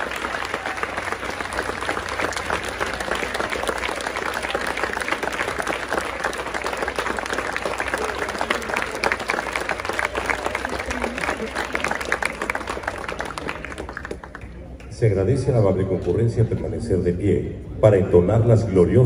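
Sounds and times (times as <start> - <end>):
crowd applauding: 0.0 - 14.9.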